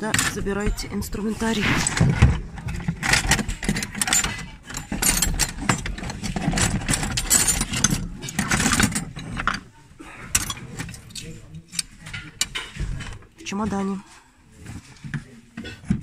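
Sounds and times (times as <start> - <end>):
metal tools clinking: 3.1 - 9.6.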